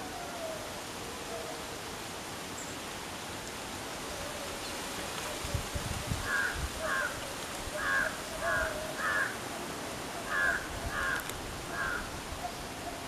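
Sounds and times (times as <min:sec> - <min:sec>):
crow cawing: 0:06.3 - 0:07.2, 0:07.8 - 0:09.4, 0:10.2 - 0:12.1.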